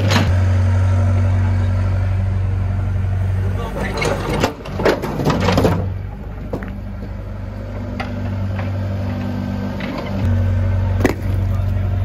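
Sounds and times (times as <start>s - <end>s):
diesel excavator engine running: 0.0s - 12.0s.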